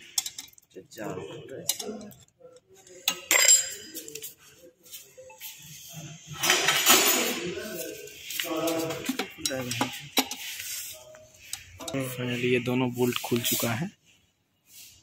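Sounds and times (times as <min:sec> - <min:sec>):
metal spanner clinking: 0:00.1 - 0:00.6.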